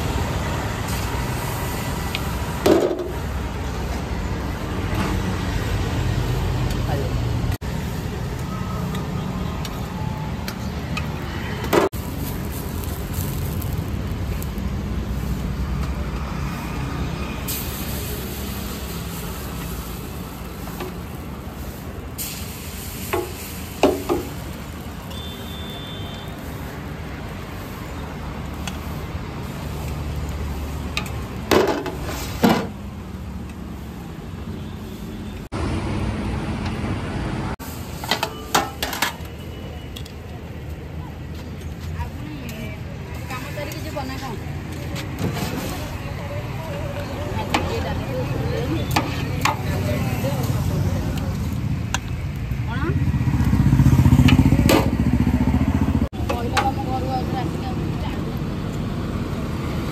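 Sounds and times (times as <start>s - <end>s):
street traffic rumble: 0.0s - 59.9s
steel plates and ladle clinking: 38.0s - 40.0s.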